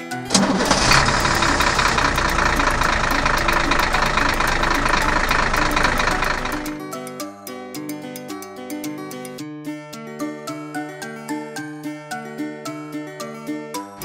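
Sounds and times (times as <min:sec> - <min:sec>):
truck engine idling: 0:00.3 - 0:06.8
fast knocking rattle: 0:00.4 - 0:06.8.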